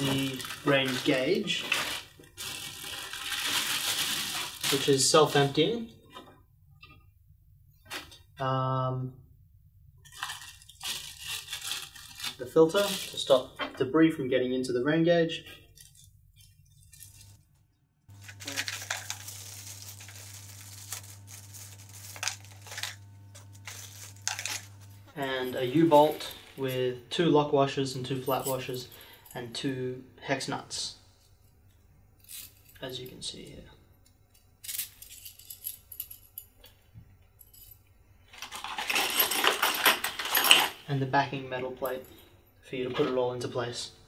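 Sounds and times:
packaging rustling and crinkling: 0.0 - 5.5, 10.0 - 13.4, 18.1 - 24.9, 38.3 - 40.8.

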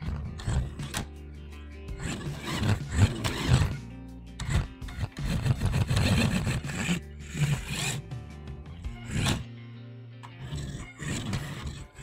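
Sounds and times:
scraping rubbing noise: 0.0 - 1.0, 2.0 - 3.8, 4.4 - 8.1, 9.0 - 9.4
background music with bass: 0.0 - 12.0.

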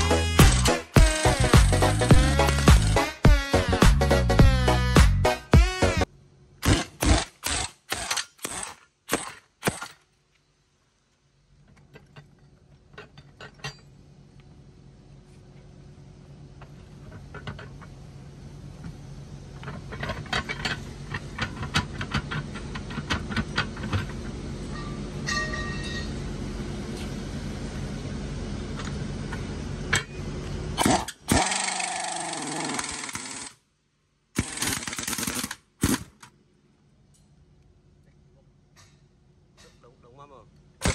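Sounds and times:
low machine hum: 10.5 - 33.1
metal clicks and clanks: 19.6 - 24.2.

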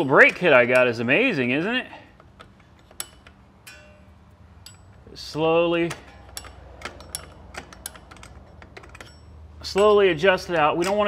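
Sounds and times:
light metallic clicks of brake adjuster: 2.0 - 5.1, 5.8 - 11.0.

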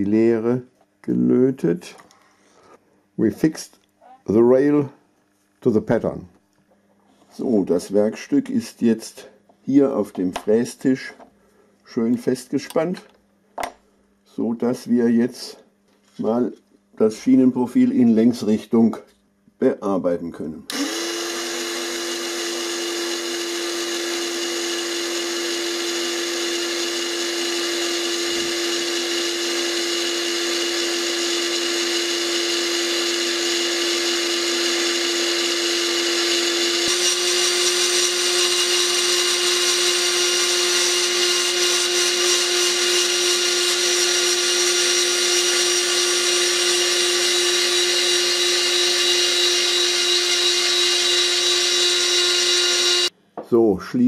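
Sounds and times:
milling machine running: 20.7 - 53.1.

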